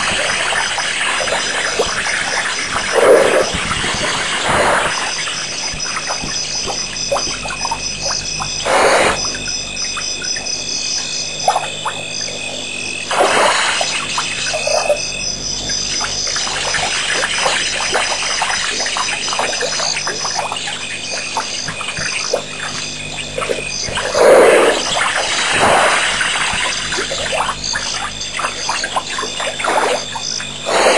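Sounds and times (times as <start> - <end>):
water gushing from elephant trunk: 24.0 - 27.3.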